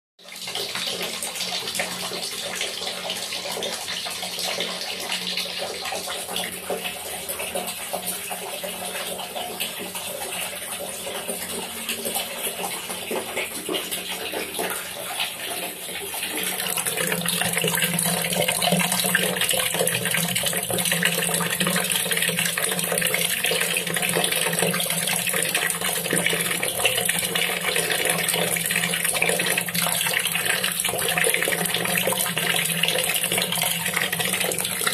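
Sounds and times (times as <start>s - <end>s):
water splashing into a bucket: 0.4s - 34.9s.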